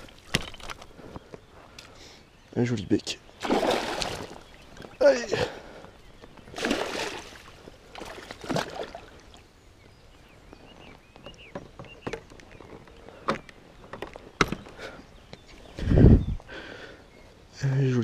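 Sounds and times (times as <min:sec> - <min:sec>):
water splashing: 0:03.4 - 0:05.2, 0:06.5 - 0:09.4.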